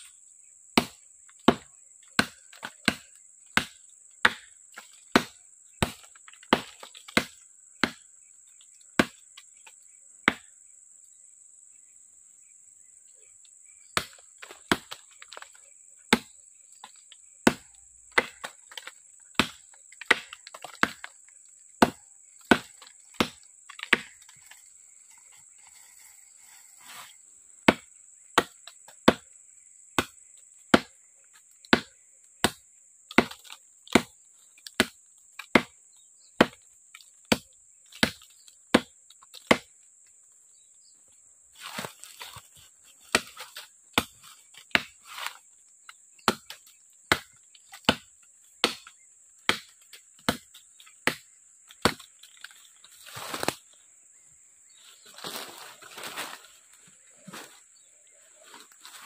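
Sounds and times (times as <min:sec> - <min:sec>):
machete chopping wood: 0:00.8 - 0:08.2, 0:09.0 - 0:10.5, 0:13.9 - 0:21.2, 0:21.8 - 0:25.2, 0:27.6 - 0:29.3, 0:30.0 - 0:31.0, 0:31.6 - 0:35.8, 0:36.4 - 0:39.7, 0:43.0 - 0:52.6.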